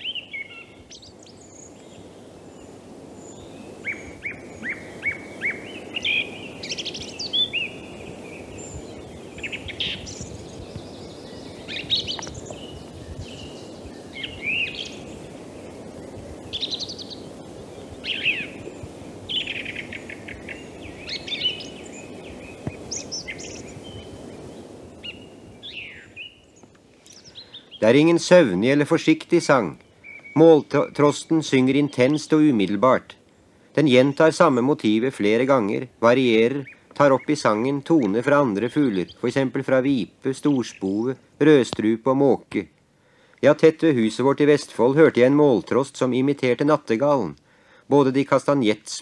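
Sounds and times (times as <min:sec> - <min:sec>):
song thrush singing: 0:00.0 - 0:49.0
steady background noise: 0:00.8 - 0:29.8.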